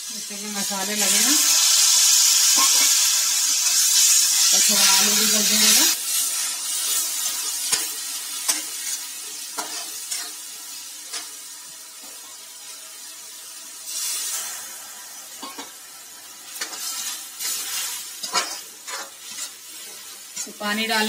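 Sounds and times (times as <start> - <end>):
food sizzling in oil: 0.0 - 21.0
spatula stirring and scraping: 16.6 - 21.0.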